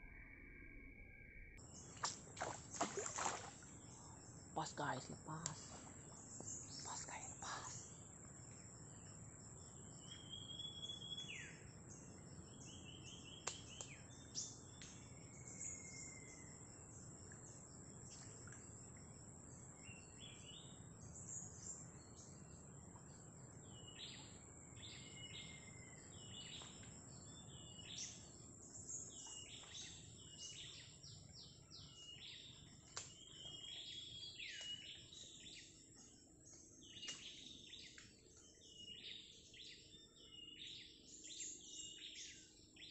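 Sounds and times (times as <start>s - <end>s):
high-pitched insect hum: 0.2s - 42.9s
small birds chirping: 1.7s - 8.1s, 23.7s - 42.9s.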